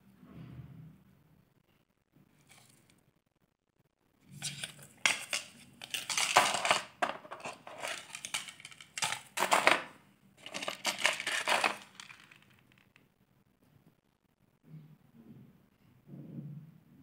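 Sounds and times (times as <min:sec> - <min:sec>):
cardboard cards rubbing and scraping: 0:04.3 - 0:09.7, 0:10.4 - 0:12.5
earrings clinking: 0:04.4 - 0:12.8.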